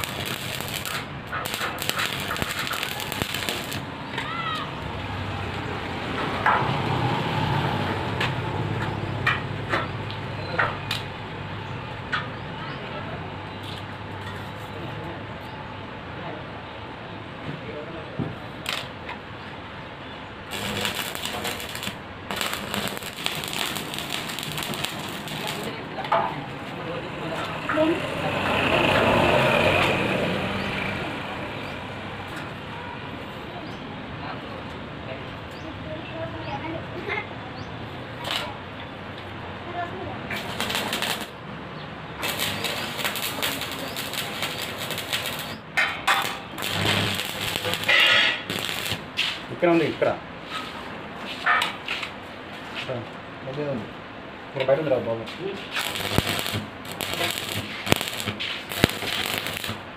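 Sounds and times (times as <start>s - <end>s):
welding arc crackling: 0.0s - 3.9s, 18.6s - 19.0s, 20.4s - 25.9s, 40.3s - 41.4s, 42.1s - 49.4s, 55.6s - 59.9s.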